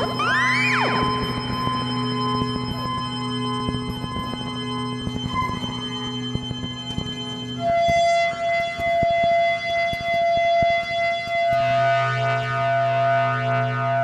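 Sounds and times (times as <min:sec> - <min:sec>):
low synth drone: 0:00.0 - 0:14.0
wavering siren-like synth tone: 0:00.0 - 0:14.0.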